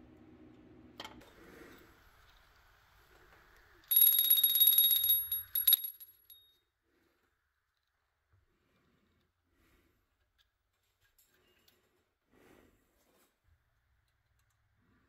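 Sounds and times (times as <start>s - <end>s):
small brass bell ringing: 3.9s - 6.6s.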